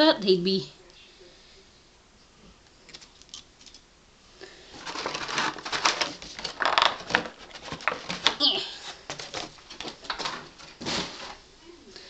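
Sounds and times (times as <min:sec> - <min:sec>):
plastic bag crinkling: 0:04.7 - 0:11.4.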